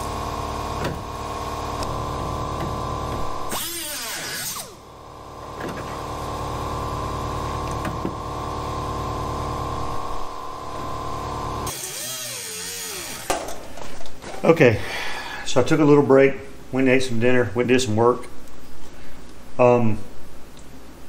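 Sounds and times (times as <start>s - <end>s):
air cut-off wheel cutting sheet metal: 3.5s - 4.8s, 11.6s - 13.4s.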